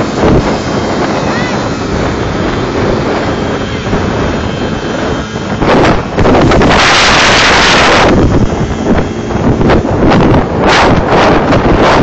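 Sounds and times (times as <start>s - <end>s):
motorcycle engine: 0.0s - 12.0s
road noise: 0.0s - 12.0s
wind buffeting the microphone: 0.0s - 12.0s.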